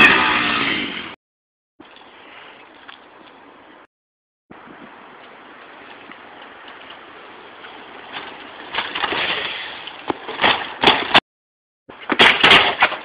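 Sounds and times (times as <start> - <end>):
bicycle riding over asphalt: 4.5 - 11.2.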